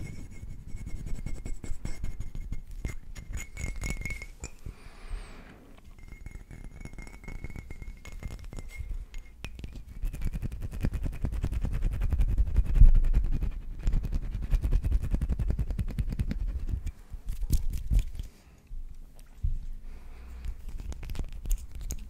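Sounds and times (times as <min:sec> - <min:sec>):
fingers tapping glass bottle: 0:00.0 - 0:04.7, 0:05.8 - 0:11.1
soft hiss: 0:00.0 - 0:06.2.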